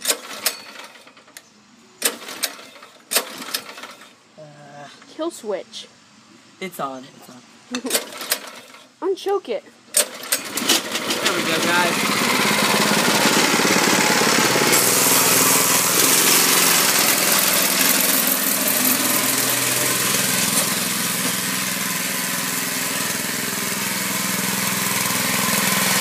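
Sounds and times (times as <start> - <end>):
go-kart engine running: 10.0 - 26.0.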